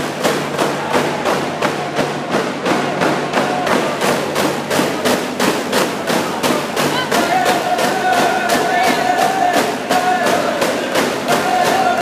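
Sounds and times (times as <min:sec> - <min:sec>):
drum beating fast rhythm: 0:00.0 - 0:12.0
voices singing: 0:06.2 - 0:12.0.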